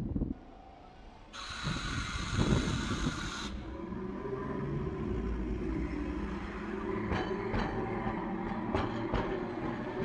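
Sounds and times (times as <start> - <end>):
streetcar rumbling past: 0.0 - 10.0
wheel clacks on rails: 7.0 - 10.0.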